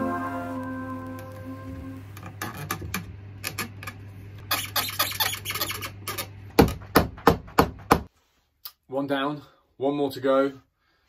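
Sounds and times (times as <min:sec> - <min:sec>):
low hum: 0:00.0 - 0:04.4.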